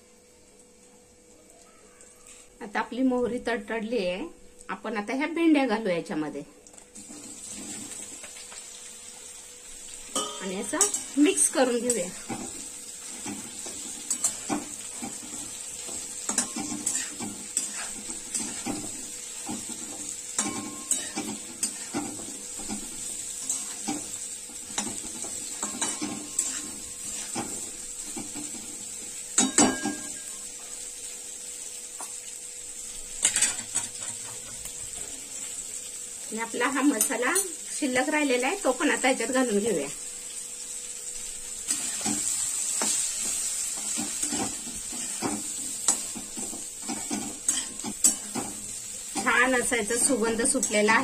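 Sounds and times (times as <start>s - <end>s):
hot oil sizzling: 0.0s - 51.0s
clatter of utensils: 10.1s - 24.1s, 24.7s - 28.7s, 29.4s - 30.4s, 33.2s - 35.1s, 43.8s - 50.9s
metal spatula scraping a pan: 10.1s - 28.7s, 41.7s - 50.9s.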